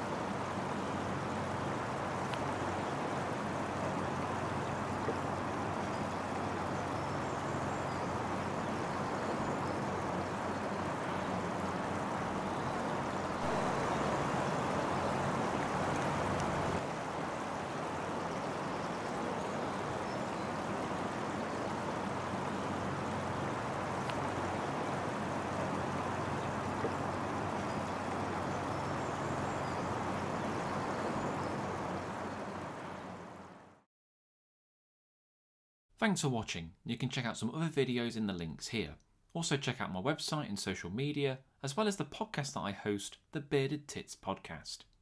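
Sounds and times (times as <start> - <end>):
steady rushing background noise: 0.0 - 33.4.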